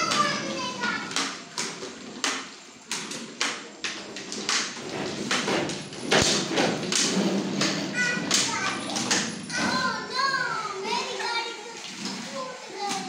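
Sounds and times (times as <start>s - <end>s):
plastic wheels rattling on stone floor: 0.0s - 10.3s.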